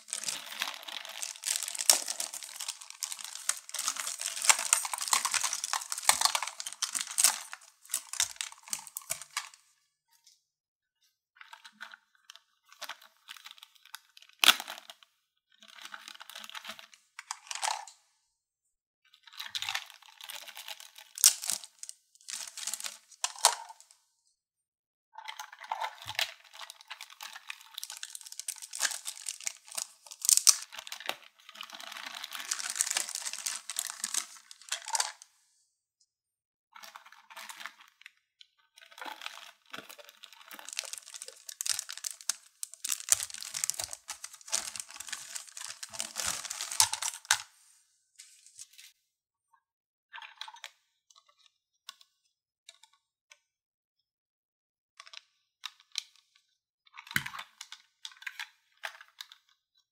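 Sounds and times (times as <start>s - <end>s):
plastic packaging crinkling and tearing: 0.0s - 9.6s, 17.2s - 17.9s, 19.5s - 23.9s, 25.9s - 35.3s, 39.0s - 47.6s, 48.2s - 48.9s.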